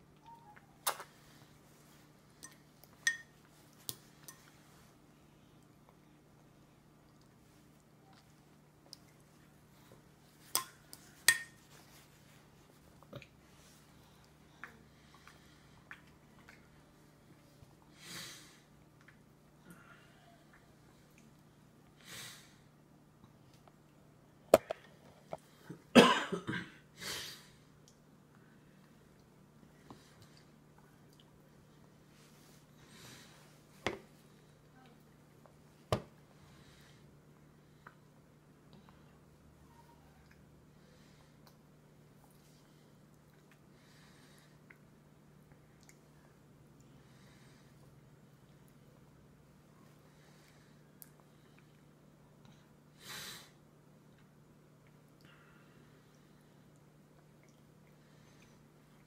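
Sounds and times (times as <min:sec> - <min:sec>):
toddler coughing: 0:26.0 - 0:26.8.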